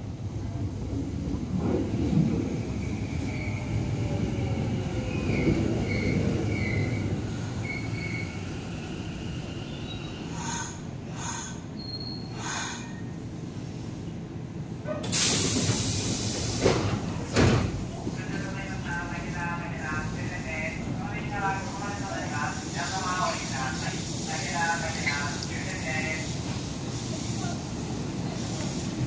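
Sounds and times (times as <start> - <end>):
train rumble: 0.0 - 29.0
air hissing: 15.1 - 17.8.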